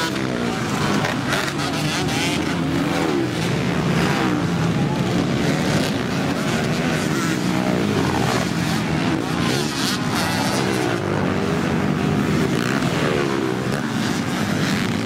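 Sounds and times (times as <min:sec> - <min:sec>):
dirt bike engines revving: 0:00.0 - 0:15.0.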